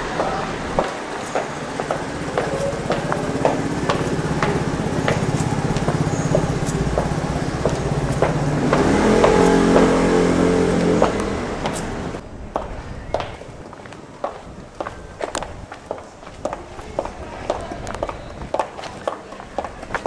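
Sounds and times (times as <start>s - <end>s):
vehicle engine running: 0.0s - 12.2s
high heels clicking on stone steps: 0.1s - 20.0s.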